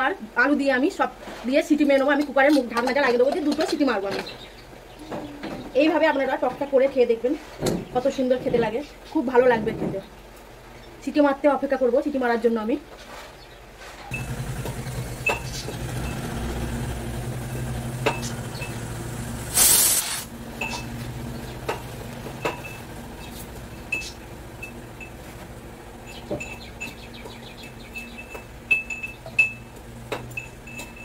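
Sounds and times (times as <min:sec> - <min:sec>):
steady low hum: 0:14.1 - 0:31.0
short loud steam hiss: 0:19.4 - 0:20.3.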